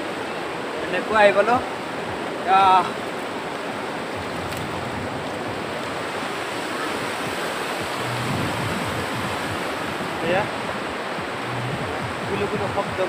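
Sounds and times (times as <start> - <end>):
river rapids rushing over rocks: 0.0 - 13.0.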